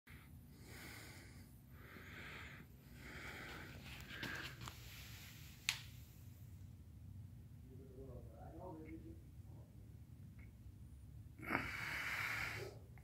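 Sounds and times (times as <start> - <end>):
soft breathing: 0.1 - 6.4, 11.4 - 13.0.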